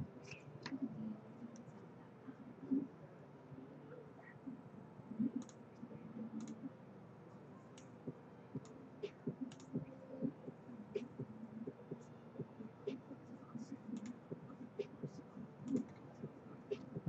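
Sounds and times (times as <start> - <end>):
computer mouse clicking: 5.4 - 5.6, 6.4 - 6.6, 8.6 - 9.8.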